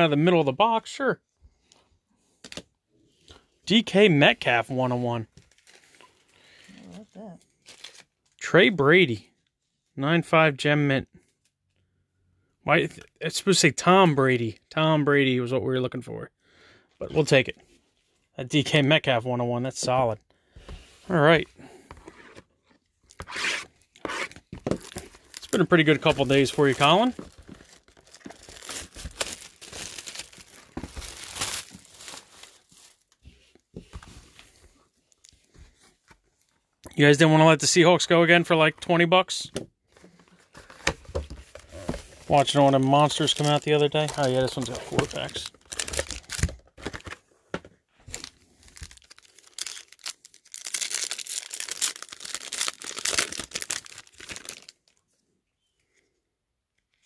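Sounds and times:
plastic shrink wrap tearing: 5.4 - 8.2, 23.1 - 33.2, 42.3 - 47.1, 48.1 - 55.0.

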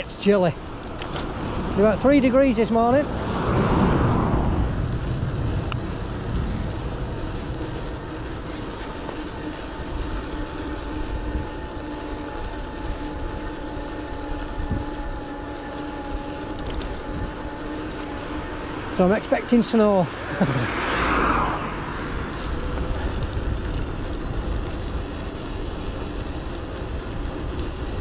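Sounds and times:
electric bike motor whining: 0.0 - 28.0
passing traffic rushing: 0.0 - 28.0
tyres rumbling on tarmac: 0.0 - 28.0
wind on the microphone: 0.8 - 18.2.

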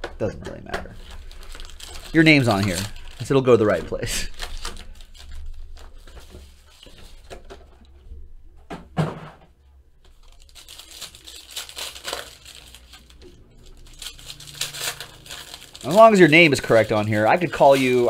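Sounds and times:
foil packs tearing: 1.0 - 7.3, 10.1 - 18.0
foil wrappers crinkling: 1.0 - 7.6, 10.1 - 18.0.

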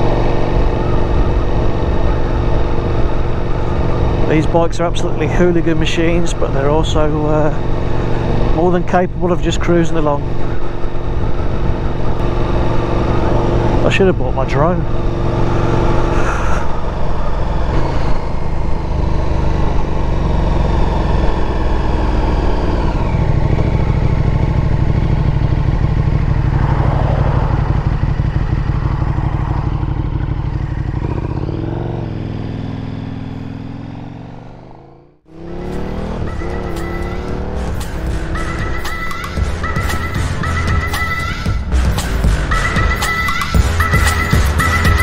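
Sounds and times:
motorcycle engine cruising: 0.0 - 45.0
music: 36.0 - 45.0.

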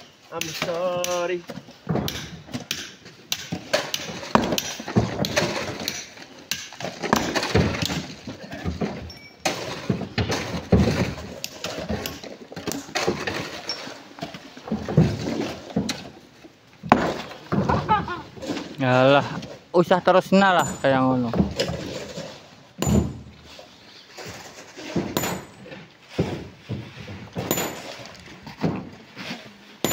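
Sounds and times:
rock knocks and scrapes: 1.6 - 19.7, 24.1 - 29.9.

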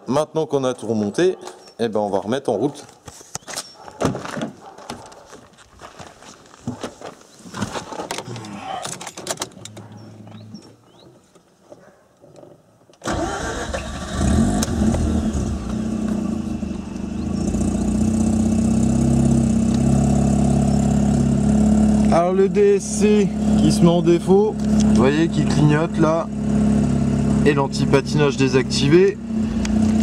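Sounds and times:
clicks and knocks: 7.6 - 10.4
rotary engine starting and idling: 13.0 - 30.0.

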